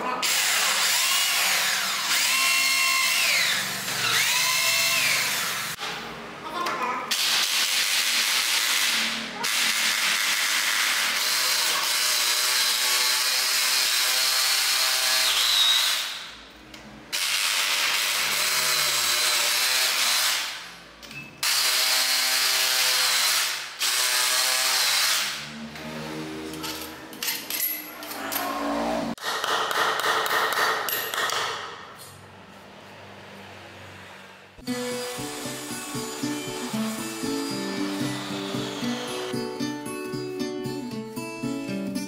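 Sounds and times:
hammer drill boring into tile: 0.2 - 5.8, 7.1 - 16.2, 17.2 - 20.5, 21.4 - 25.4.

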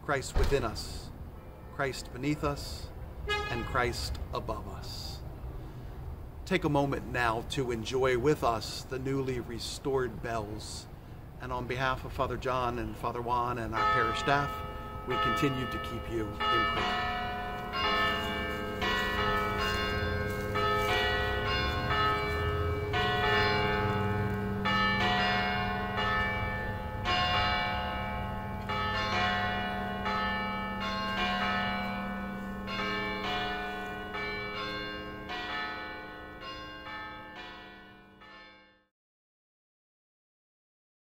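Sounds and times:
church bells pealing: 0.2 - 5.1, 11.5 - 38.9.

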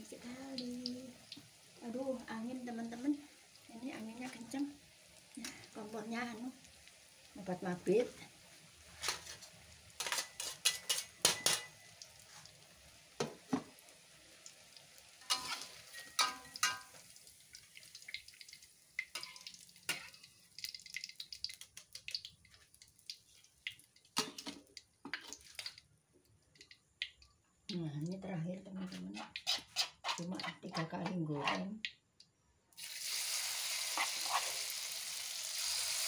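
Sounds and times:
oil sizzling: 0.0 - 27.3, 32.7 - 36.0
metal utensils scraping a wok: 9.0 - 11.8, 15.2 - 16.9, 29.0 - 30.6, 33.8 - 34.8
oil dripping into wok: 10.6 - 28.2.

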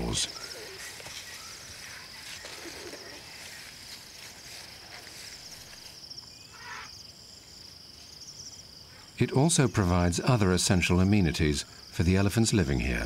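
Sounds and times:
insects trilling: 0.0 - 13.0
faint soft rustles: 0.7 - 6.0.

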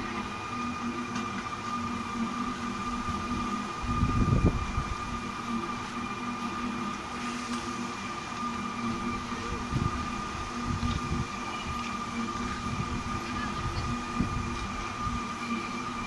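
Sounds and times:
ride machinery hum and whine: 0.0 - 16.0.

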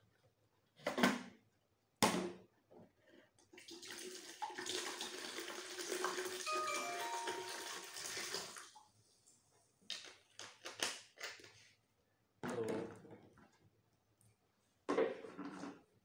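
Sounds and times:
cola pouring into plastic jug: 3.5 - 8.9.

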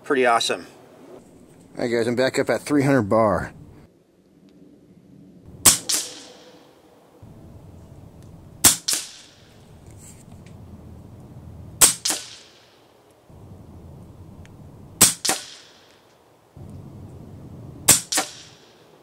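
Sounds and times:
air rifle shots: 5.6 - 6.7, 8.6 - 9.5, 11.8 - 12.8, 15.0 - 16.0, 17.8 - 18.9
fainter second crack: 5.6 - 6.8.

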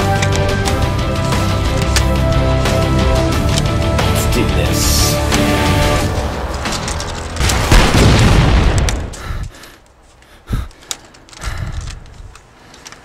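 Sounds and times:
music: 0.0 - 8.4
explosion boom: 7.4 - 9.2
faint clicks: 9.6 - 13.0.

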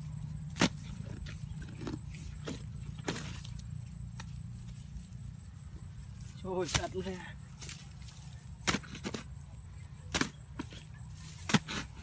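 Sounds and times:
hoe chopping into soil: 0.5 - 1.2, 8.6 - 9.3, 10.1 - 12.0.

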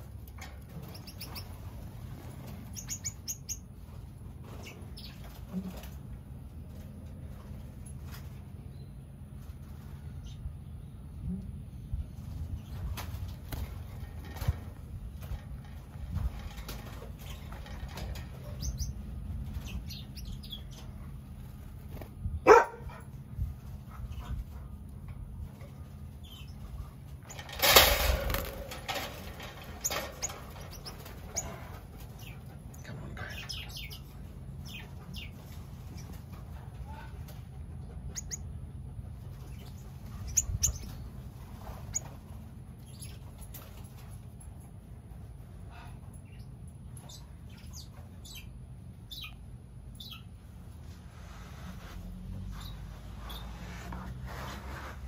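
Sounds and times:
small birds chirping: 0.6 - 5.5, 14.3 - 22.6, 25.4 - 27.6, 28.9 - 37.2, 38.0 - 43.7, 45.6 - 50.6, 52.4 - 53.9.

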